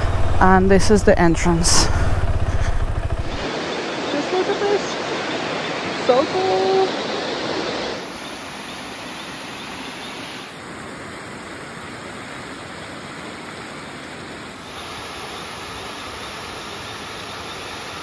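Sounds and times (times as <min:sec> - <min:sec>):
water cascading over rocks: 0:14.2 - 0:18.0.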